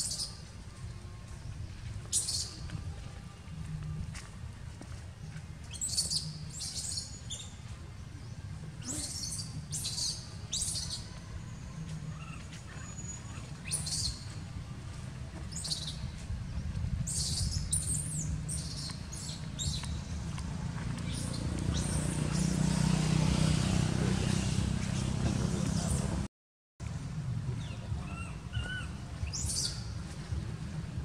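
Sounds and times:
steady low rumble: 7.5s - 22.2s.

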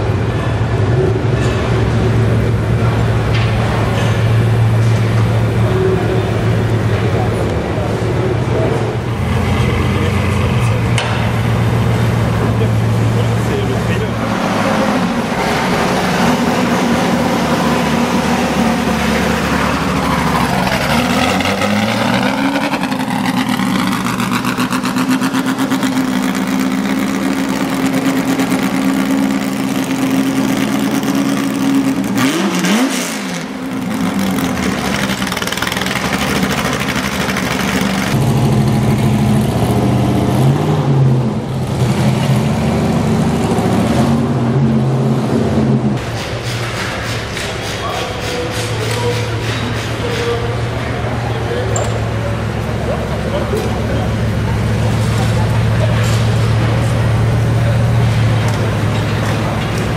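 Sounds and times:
car pulling away: 0.0s - 47.3s
car engine idling and revving: 0.0s - 59.9s.

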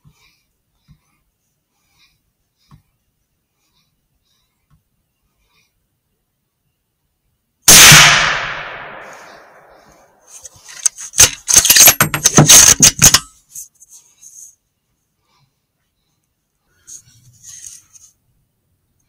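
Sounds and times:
rifle shot with echo: 7.7s - 10.0s.

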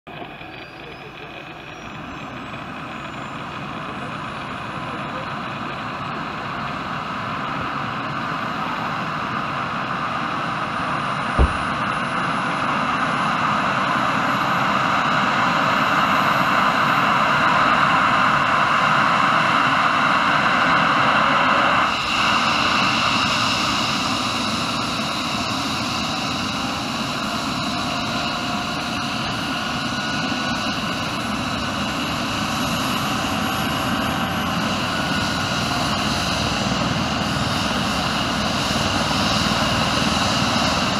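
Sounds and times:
helicopter turbine whine: 0.1s - 40.9s
sharp knock: 11.4s - 11.9s.

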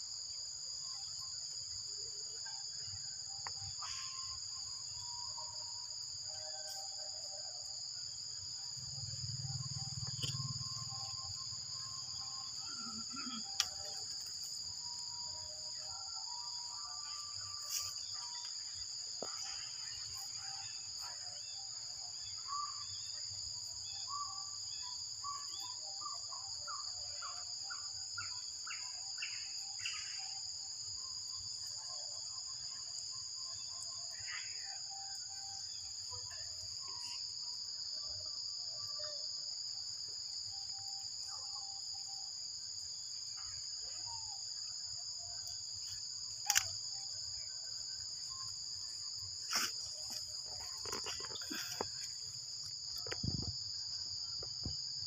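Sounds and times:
high-pitched insect drone: 0.0s - 55.0s
sharp clicks: 46.4s - 46.8s.

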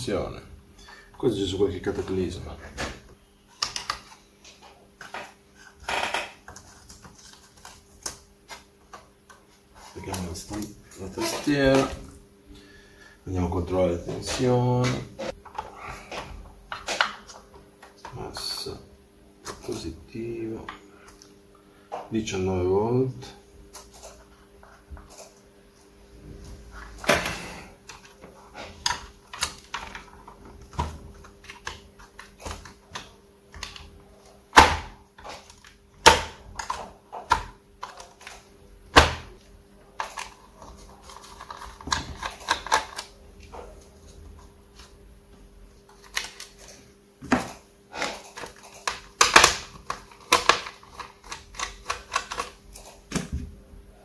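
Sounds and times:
faint steady hum: 0.0s - 54.0s.

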